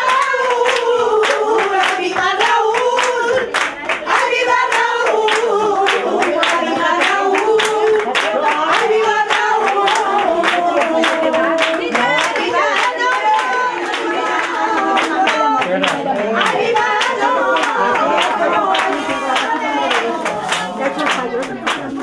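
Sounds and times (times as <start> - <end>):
hand claps: 0.0 - 22.0
women singing in unison: 0.0 - 22.0.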